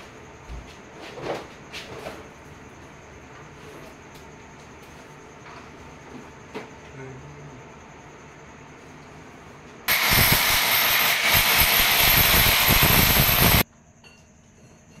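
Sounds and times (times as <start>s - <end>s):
hammer drill boring into wall: 9.9s - 13.6s.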